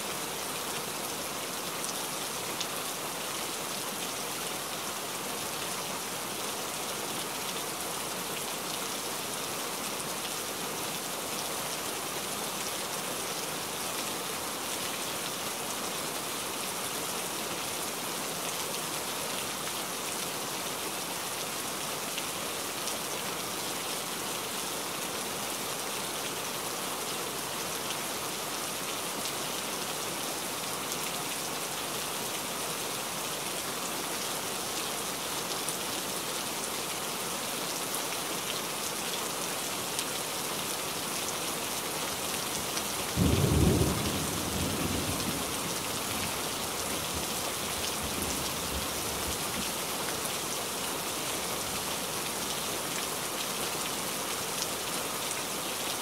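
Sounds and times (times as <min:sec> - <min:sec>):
rain on foliage: 0:00.0 - 0:56.0
deep rumble of thunder: 0:43.2 - 0:45.5.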